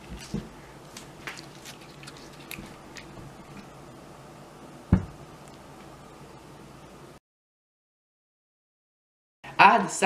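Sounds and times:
spinach leaves being torn: 1.0s - 3.2s.

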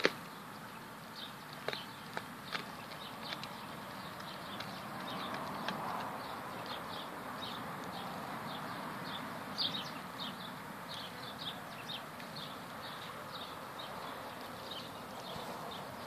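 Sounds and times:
birds chirping: 0.0s - 16.0s
dog gnawing and chewing: 1.6s - 6.8s.

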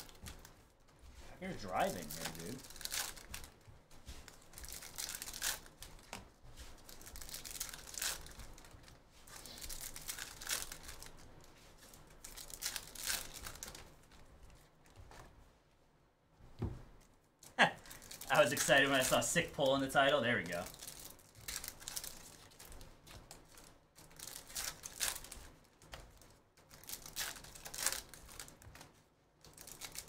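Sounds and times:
foil wrappers crinkling: 0.0s - 15.2s, 17.8s - 30.0s
cards handled: 0.0s - 15.3s.

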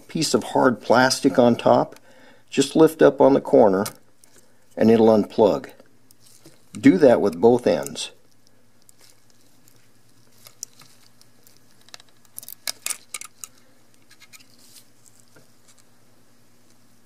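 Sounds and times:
crinkling: 6.0s - 16.0s.

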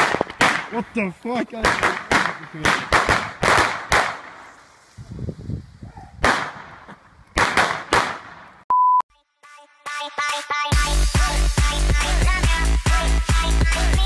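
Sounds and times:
firecracker bangs: 0.0s - 0.9s, 1.6s - 4.6s, 6.2s - 8.5s
short steady beep: 8.7s - 9.0s.

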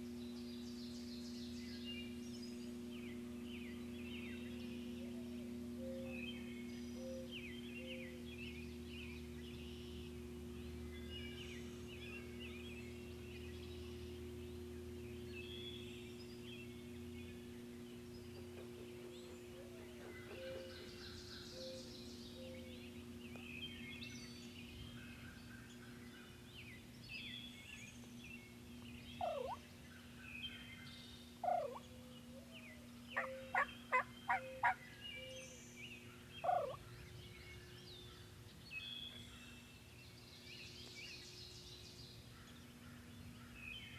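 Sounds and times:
songbirds chirping: 0.0s - 43.9s
steady low hum: 0.0s - 43.9s
wild turkey calling: 17.2s - 23.4s, 29.2s - 30.0s, 31.4s - 37.0s
turkey clucks: 29.2s - 29.6s, 31.4s - 31.8s, 33.2s - 34.8s, 36.4s - 36.8s.

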